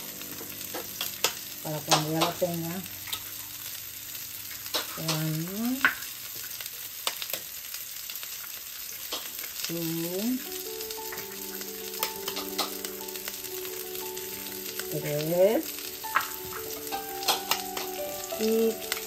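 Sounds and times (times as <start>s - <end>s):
soft background music: 0.0s - 5.8s, 9.6s - 19.0s
onions sizzling in frying pan: 0.0s - 19.0s.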